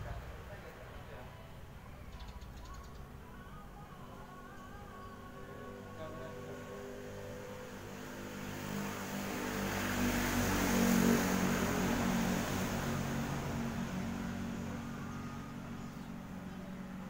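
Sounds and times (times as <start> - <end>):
motor vehicle passing: 5.6 - 17.0.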